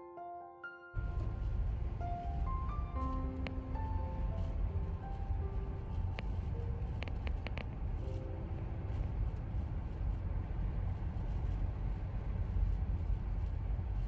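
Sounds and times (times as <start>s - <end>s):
road and engine rumble: 1.0s - 14.0s
faint clicks: 3.0s - 5.3s, 5.9s - 8.2s.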